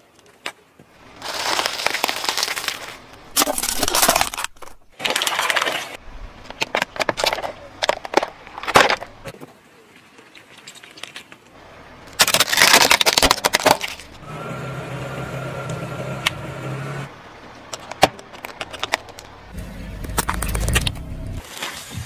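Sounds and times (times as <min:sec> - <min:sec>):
sharp cracks and pops: 0:10.5 - 0:14.2
steady low hum: 0:19.3 - 0:21.4.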